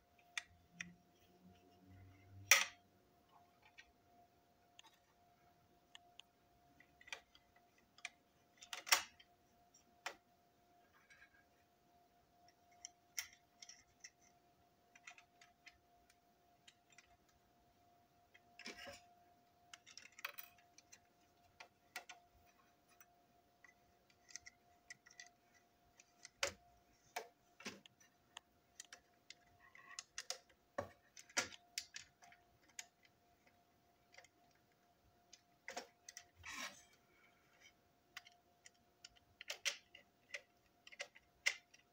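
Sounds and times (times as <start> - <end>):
faint steady hum: 0.0 - 41.9
plastic toy parts clicking: 6.8 - 9.3, 12.5 - 14.3, 14.9 - 17.4, 19.7 - 22.2, 22.9 - 36.8, 37.5 - 41.9.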